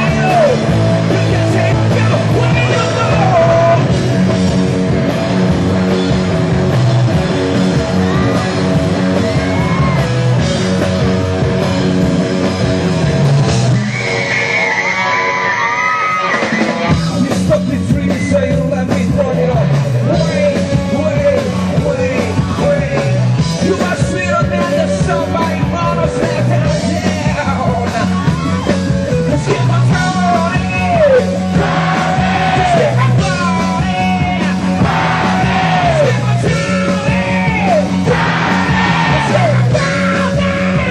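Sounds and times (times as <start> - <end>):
man singing and shouting: 0.0 - 4.1, 16.7 - 40.9
bass guitar: 0.0 - 40.9
electric guitar: 0.0 - 40.9.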